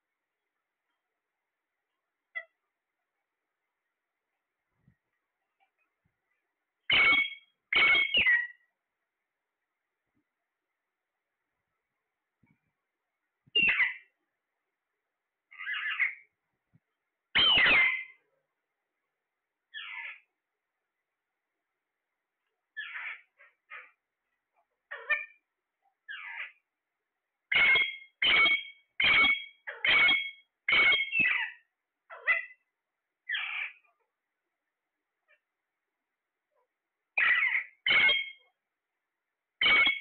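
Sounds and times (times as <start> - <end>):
parakeets squawking: 6.9 - 8.6, 13.6 - 14.1, 15.5 - 16.3, 17.4 - 18.2, 19.7 - 20.3, 22.8 - 24.0, 24.9 - 25.4, 26.1 - 26.6, 27.5 - 32.6, 33.3 - 33.8, 37.2 - 38.4, 39.6 - 40.0.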